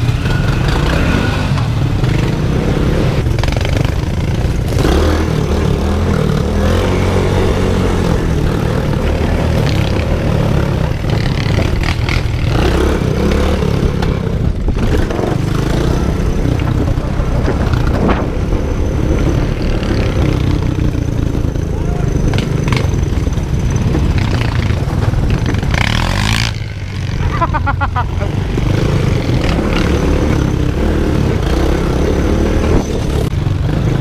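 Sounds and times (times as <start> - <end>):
off-road vehicle engine running: 0.0 - 34.0
knocks and clatters: 13.9 - 21.4, 22.2 - 26.7.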